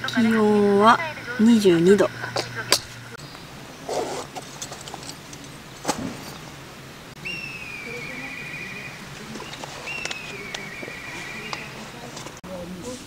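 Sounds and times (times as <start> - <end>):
bird of prey whistling call: 7.2 - 11.8.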